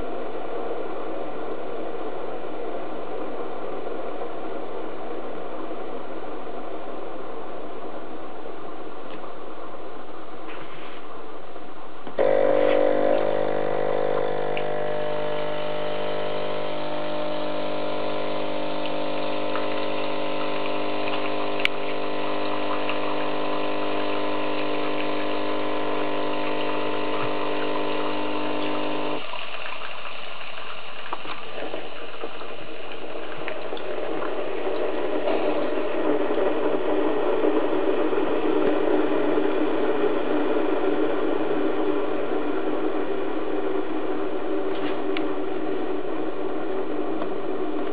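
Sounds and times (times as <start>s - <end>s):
coffee machine pump humming: 12.1s - 47.9s
water pouring into glass bowl: 12.9s - 36.9s.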